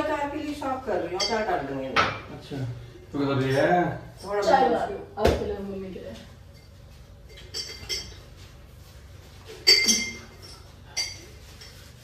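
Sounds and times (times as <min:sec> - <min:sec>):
dishes and utensils clinking: 0:01.1 - 0:02.4, 0:06.5 - 0:12.0.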